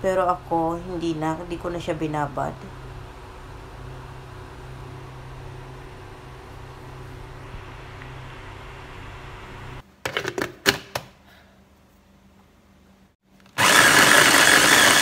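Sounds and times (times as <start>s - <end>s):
low hum: 0.0s - 9.8s.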